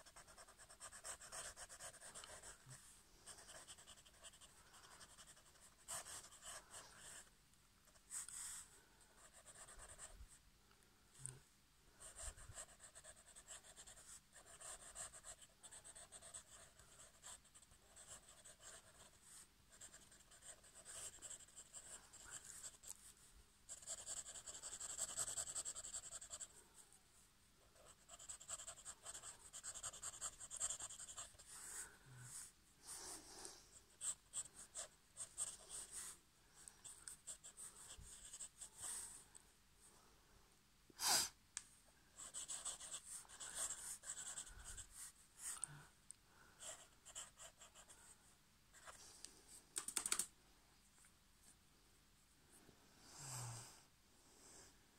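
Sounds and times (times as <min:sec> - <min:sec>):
pen scratching on paper: 0:00.0 - 0:07.3, 0:09.2 - 0:10.2, 0:12.0 - 0:23.0, 0:23.7 - 0:26.6, 0:27.8 - 0:31.5, 0:34.0 - 0:36.1, 0:36.8 - 0:38.9, 0:42.2 - 0:44.9, 0:46.6 - 0:48.0.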